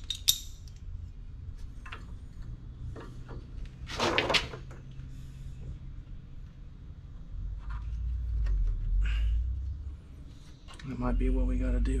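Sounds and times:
metal clip clicking and knocking: 0.0 - 0.8.

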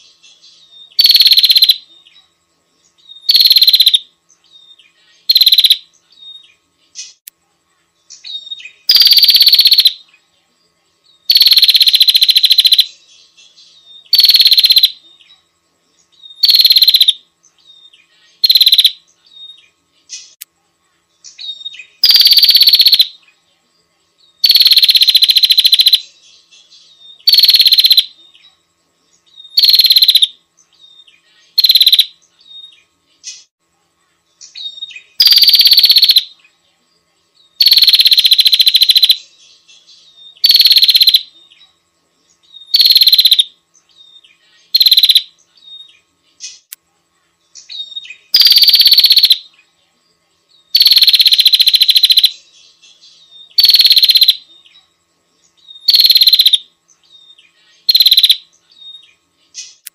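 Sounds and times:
high-pitched bird calls: 0.0 - 2.1, 3.1 - 7.2, 8.1 - 10.0, 11.3 - 13.0, 13.6 - 15.3, 16.2 - 17.2, 17.8 - 19.6, 21.3 - 23.2, 24.4 - 28.4, 29.3 - 33.5, 34.4 - 36.4, 37.6 - 41.5, 42.4 - 46.7, 47.6 - 49.5, 50.7 - 54.7, 55.6 - 56.6, 57.2 - 59.9.

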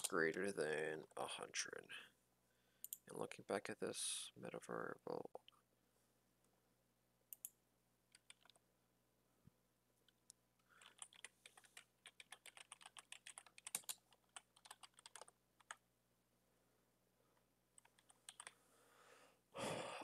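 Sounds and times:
faint keyboard typing: 7.3 - 8.6, 10.0 - 15.8, 17.8 - 18.6.

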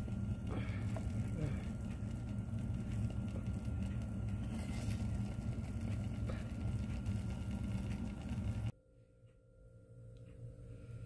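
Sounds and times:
low machine rumble: 0.0 - 8.8.

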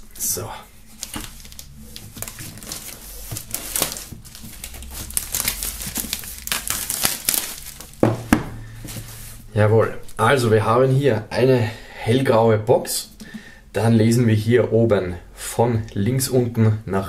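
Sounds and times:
plastic film crinkling: 0.2 - 8.2
loud knock: 8.0 - 8.6.

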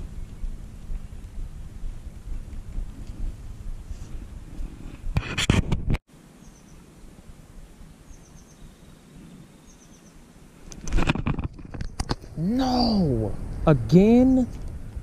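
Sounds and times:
wind buffeting microphone: 0.0 - 6.0, 10.7 - 15.0
small bird chirping: 6.4 - 6.9, 8.0 - 10.2.

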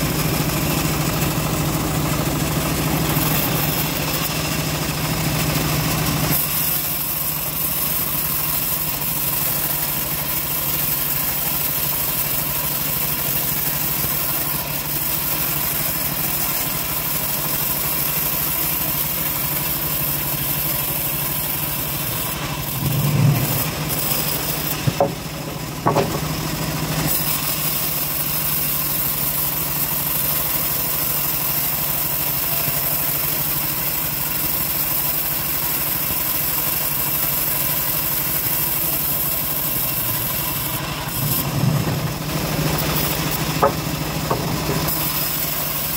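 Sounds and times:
band sawmill cutting log: 0.0 - 45.9
sharp knocks: 23.0 - 26.4, 43.3 - 45.0.

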